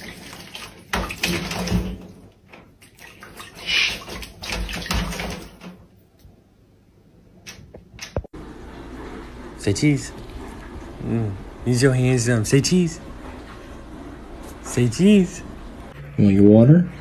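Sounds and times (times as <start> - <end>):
owl splashing in water: 2.8 - 5.7.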